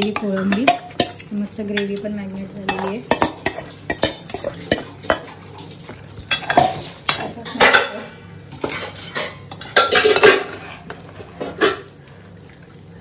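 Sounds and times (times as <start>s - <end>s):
metal spoon scraping a pot: 0.0s - 2.0s, 2.7s - 5.4s, 9.1s - 11.9s.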